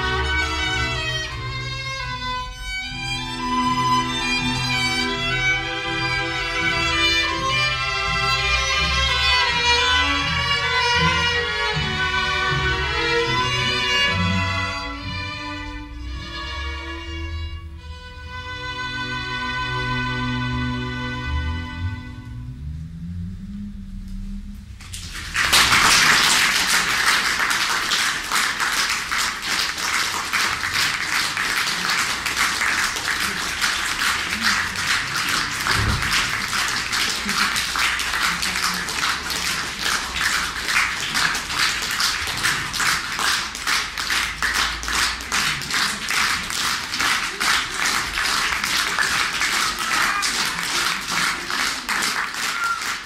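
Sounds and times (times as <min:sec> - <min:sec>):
audience applause: 0:24.8 - 0:53.0.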